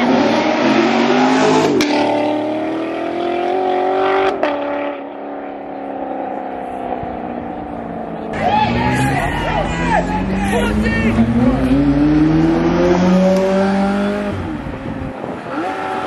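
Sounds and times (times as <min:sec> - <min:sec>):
car engine accelerating hard: 0:00.0 - 0:16.0.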